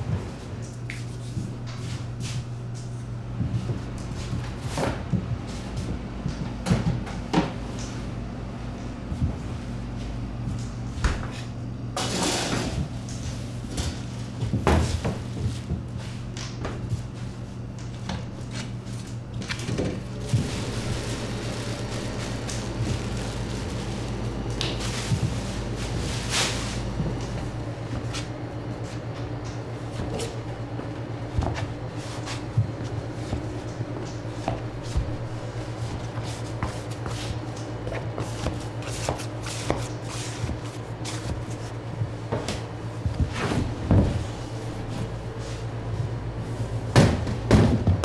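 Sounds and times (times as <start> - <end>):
low machine hum: 0.0 - 48.0.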